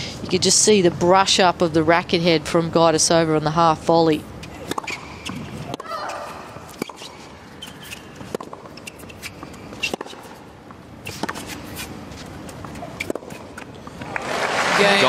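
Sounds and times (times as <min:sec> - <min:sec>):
tennis ball bouncing: 0:04.2 - 0:14.1
racket striking tennis ball: 0:04.4 - 0:12.0, 0:12.6 - 0:13.6.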